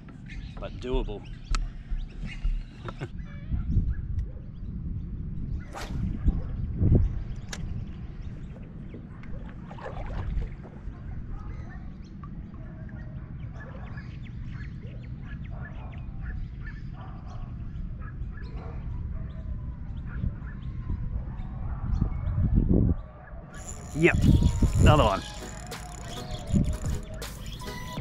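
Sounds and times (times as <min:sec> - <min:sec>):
birds calling: 0:00.0 - 0:04.7, 0:23.0 - 0:28.0
wind rumbling on microphone: 0:00.0 - 0:28.0.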